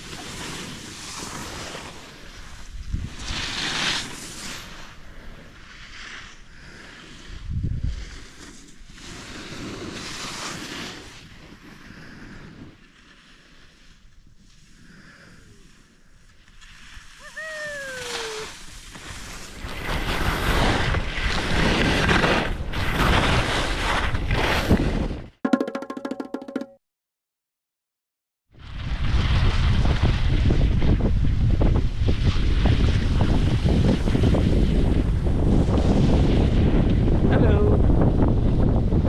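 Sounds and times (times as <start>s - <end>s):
skis scraping over snow: 0.0s - 25.2s, 32.0s - 37.0s
wind buffeting microphone: 7.3s - 8.2s, 28.6s - 39.0s.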